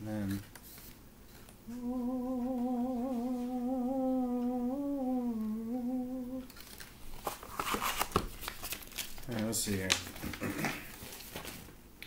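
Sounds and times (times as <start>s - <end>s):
man humming: 1.7s - 6.5s.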